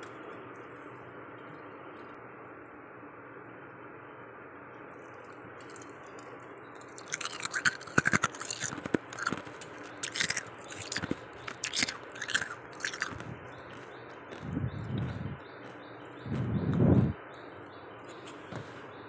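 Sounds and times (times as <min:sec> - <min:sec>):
crisp crunches of chewing frost: 0:05.2 - 0:16.5.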